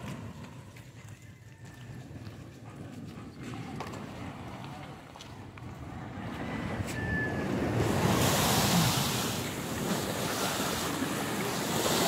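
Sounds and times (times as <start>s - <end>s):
sea waves washing against seawall: 6.6s - 12.0s.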